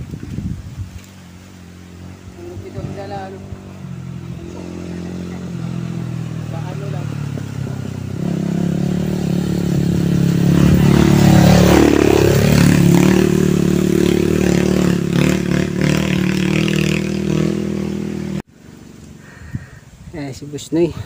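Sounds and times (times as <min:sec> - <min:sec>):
small motorcycle engine passing: 0:00.0 - 0:19.1.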